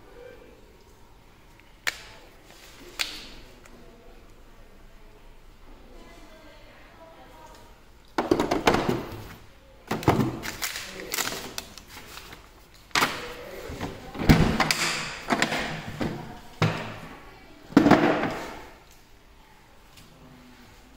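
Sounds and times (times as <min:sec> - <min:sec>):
plastic case knocks and thumps: 0:08.2 - 0:09.1.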